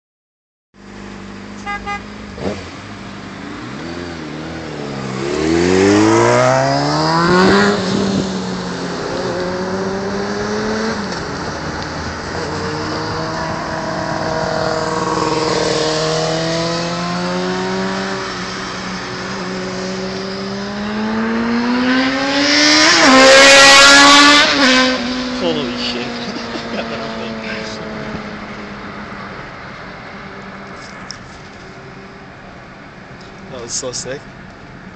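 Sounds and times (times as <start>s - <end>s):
motorcycle engine: 1.5s - 32.2s
traffic engines from inside car: 25.4s - 34.9s.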